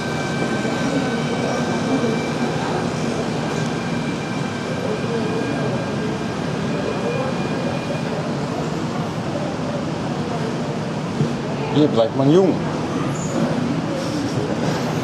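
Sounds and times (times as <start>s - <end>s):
faint high whines: 0.0s - 9.8s
model trains running: 0.0s - 15.0s.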